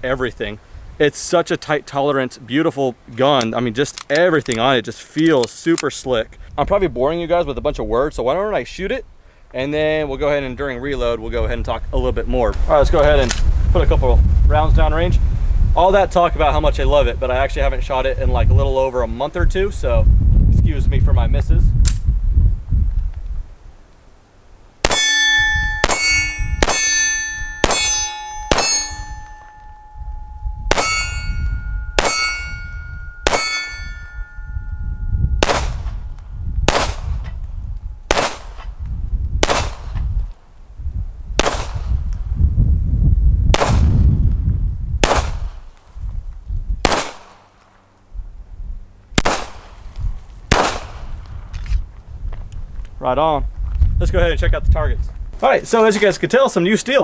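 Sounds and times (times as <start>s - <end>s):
pistol shots: 24.8s - 29.4s, 32.0s - 32.5s, 33.2s - 33.9s, 35.4s - 36.0s, 36.7s - 37.2s, 38.1s - 38.7s, 39.4s - 40.0s, 41.4s - 42.0s, 43.6s - 43.9s, 45.0s - 45.6s, 46.8s - 47.7s, 49.2s - 49.8s, 50.5s - 51.2s
steel targets ringing: 24.9s - 36.8s, 41.4s - 42.0s.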